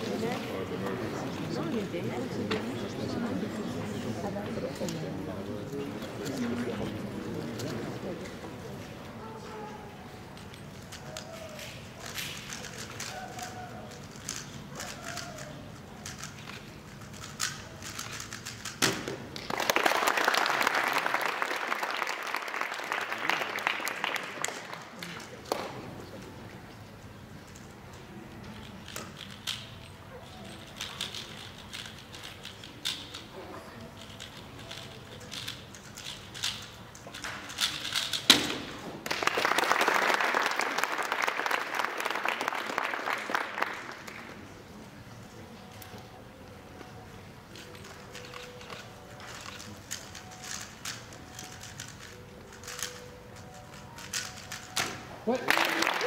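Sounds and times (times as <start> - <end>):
puzzle cube clicking: 10.4 - 19.0, 33.9 - 38.4, 47.5 - 55.0
audience applauding: 19.4 - 25.1, 39.0 - 44.3, 55.3 - 56.0.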